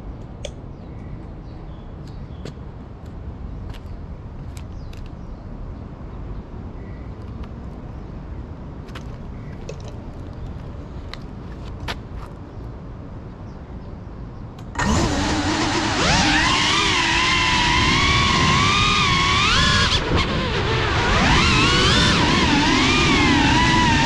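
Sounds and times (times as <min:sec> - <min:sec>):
drone propellers whining: 0:14.6 - 0:24.0.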